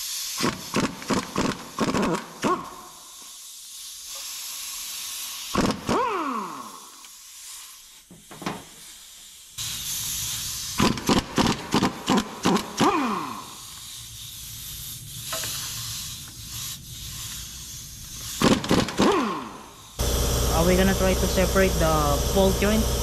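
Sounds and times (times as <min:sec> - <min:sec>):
steady hiss: 0:00.0 - 0:00.8, 0:02.8 - 0:05.6, 0:06.5 - 0:11.5, 0:13.2 - 0:18.6
impact wrench bursts: 0:00.0 - 0:07.6, 0:09.6 - 0:14.0, 0:18.1 - 0:23.0.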